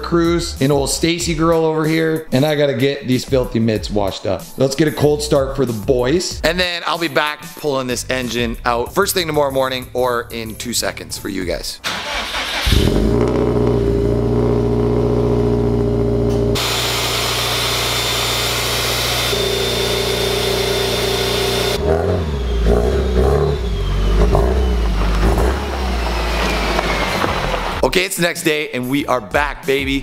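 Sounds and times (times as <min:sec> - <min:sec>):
car engine idling: 0:11.9 - 0:27.8.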